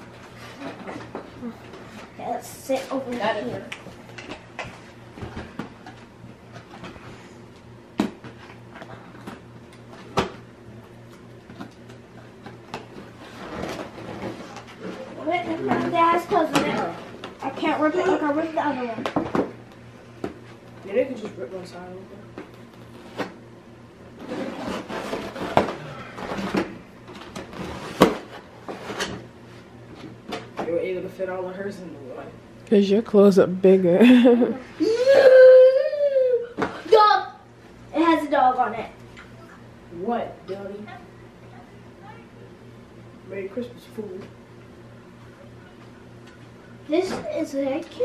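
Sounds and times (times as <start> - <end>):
steady low hum: 0.0 - 48.0
wrapping paper tearing and rustling: 24.2 - 26.6.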